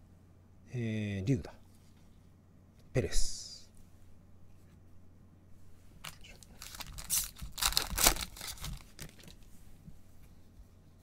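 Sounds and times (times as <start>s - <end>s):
foil wrapper tearing and crinkling: 6.0s - 9.4s.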